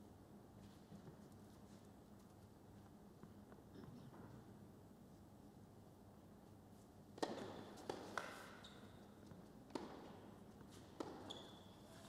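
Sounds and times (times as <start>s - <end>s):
tennis ball struck by rackets: 7.2s - 8.5s, 9.7s - 11.2s.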